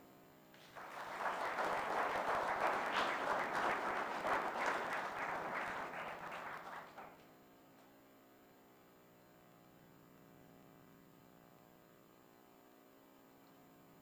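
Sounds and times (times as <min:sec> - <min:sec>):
audience applauding: 0:00.6 - 0:07.2.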